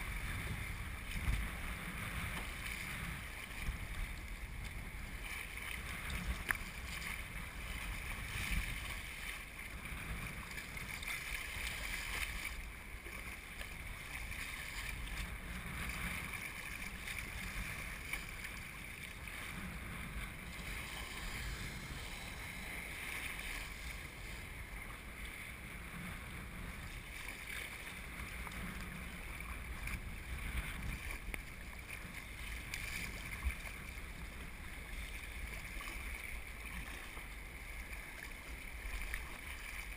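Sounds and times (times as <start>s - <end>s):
wind buffeting microphone: 0.0s - 12.5s, 13.8s - 37.0s
sea water splashing against kayak: 0.0s - 39.9s.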